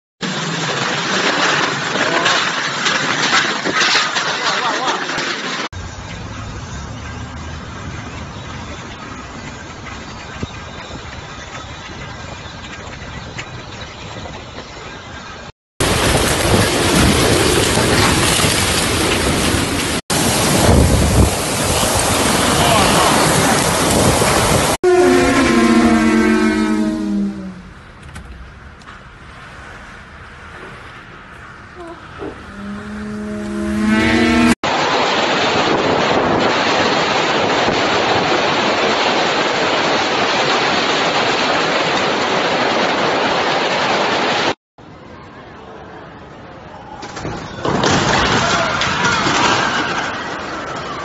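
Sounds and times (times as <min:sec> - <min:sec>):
heavy rain: 0:00.2 - 0:05.7, 0:15.8 - 0:27.0, 0:33.5 - 0:44.6, 0:47.1 - 0:51.0
storm wind gusting: 0:15.8 - 0:32.5, 0:33.6 - 0:44.6
low falling horn-like tone: 0:24.8 - 0:27.7, 0:31.7 - 0:34.6.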